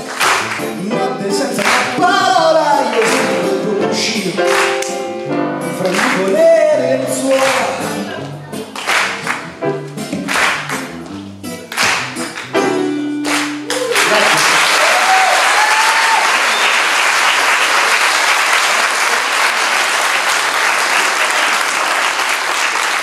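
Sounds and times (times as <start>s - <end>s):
audience applause: 0.0s - 0.7s, 5.8s - 6.5s, 8.7s - 9.5s, 13.2s - 23.0s
grand piano and guitar: 0.0s - 15.3s.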